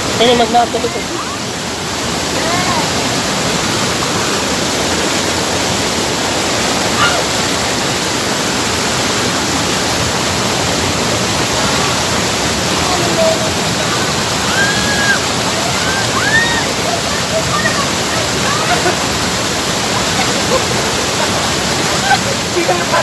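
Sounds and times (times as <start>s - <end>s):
waterfall rushing: 0.0s - 23.0s
faint voices: 11.4s - 23.0s.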